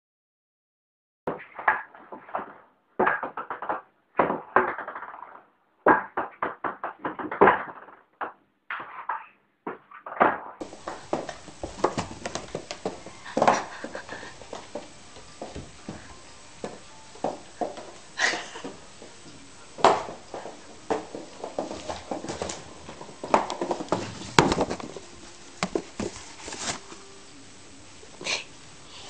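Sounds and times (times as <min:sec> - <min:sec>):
scattered knocks and taps: 0:10.6 - 0:26.3
steady hiss: 0:10.6 - 0:29.0
ping-pong ball bouncing: 0:14.4 - 0:24.8.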